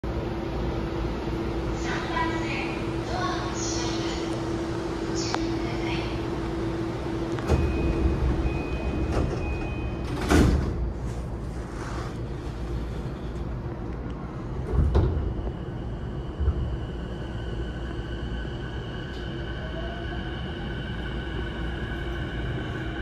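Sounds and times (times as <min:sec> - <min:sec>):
train doors sliding shut: 0:07.1 - 0:13.4, 0:14.5 - 0:15.7.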